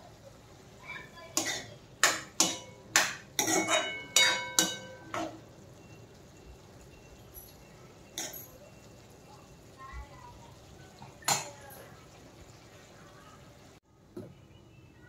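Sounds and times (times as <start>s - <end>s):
steel spoon scraping metal pan: 1.4s - 5.4s.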